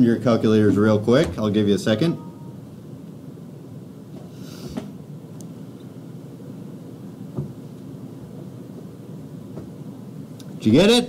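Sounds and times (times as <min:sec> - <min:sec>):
steady low hum: 0:00.0 - 0:11.0
soft knocks: 0:07.3 - 0:07.6.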